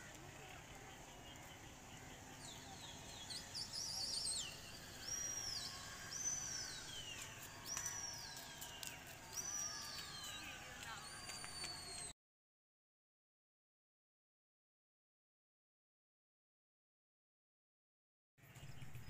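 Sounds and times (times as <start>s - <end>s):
birds of prey whistling cries: 2.4s - 12.1s.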